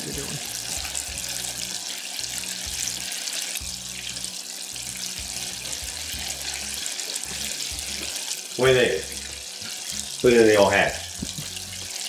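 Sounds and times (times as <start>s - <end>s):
fish deep-frying in hot oil: 0.0s - 12.0s.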